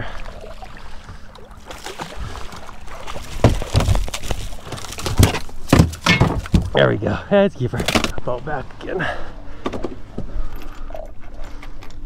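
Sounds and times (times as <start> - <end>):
water splashing: 0.0 - 5.7
boat noise: 0.0 - 11.8
fish flopping on deck: 1.6 - 6.7.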